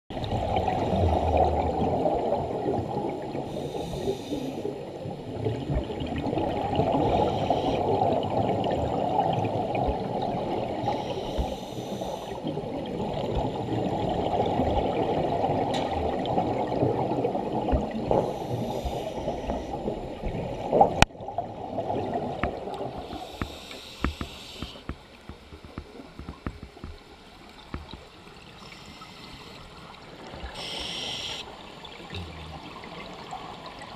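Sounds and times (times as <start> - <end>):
water bubbling and rushing: 0.1 - 30.7
diver's regulator hissing: 3.5 - 4.7, 7.1 - 7.9, 10.9 - 12.4, 18.2 - 19.8, 23.1 - 24.8, 30.6 - 31.5.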